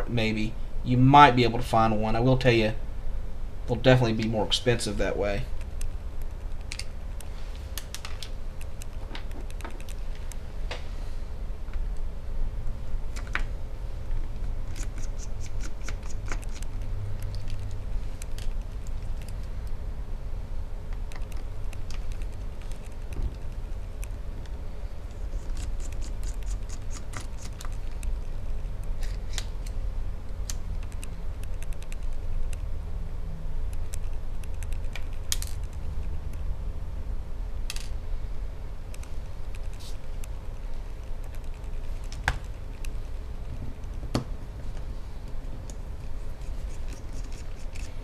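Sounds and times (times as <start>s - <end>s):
steady low hum: 0.0s - 48.0s
screwdriver and tiny screws clicking: 46.4s - 48.0s.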